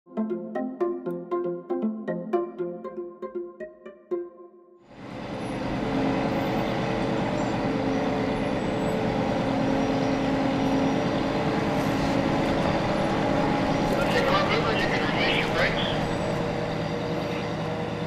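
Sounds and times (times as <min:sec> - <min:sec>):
heavy machinery engine drone: 0:04.9 - 0:18.0.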